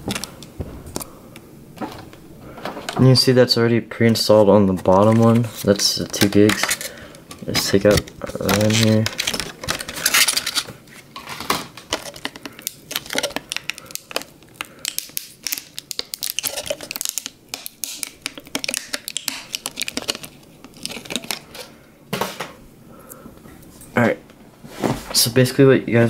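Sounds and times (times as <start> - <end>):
plastic packaging crinkling: 0.0 - 1.1, 4.1 - 21.8.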